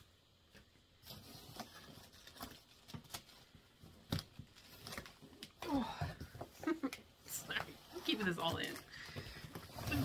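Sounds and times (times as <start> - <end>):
paper rustling: 1.0 - 5.6.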